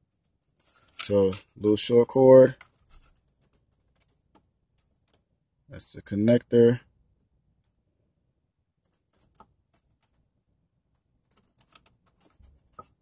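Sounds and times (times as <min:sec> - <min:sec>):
clicks and rustles of wires: 0:00.0 - 0:05.3, 0:08.8 - 0:10.3, 0:10.9 - 0:13.0.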